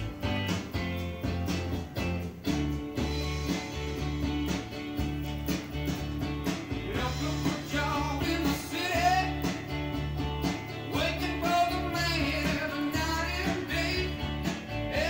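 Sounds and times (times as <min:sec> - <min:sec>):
guitar song on vinyl record: 0:00.0 - 0:15.0
person singing: 0:06.7 - 0:09.8, 0:10.9 - 0:15.0.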